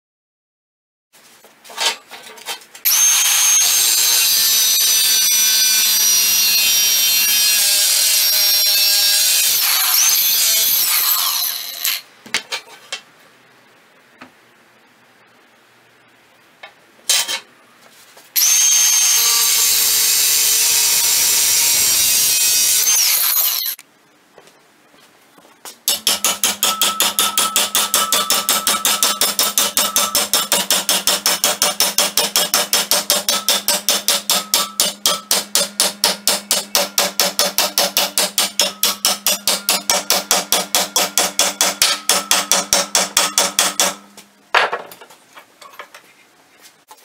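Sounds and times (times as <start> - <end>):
power tool whining: 18.4 - 23.8.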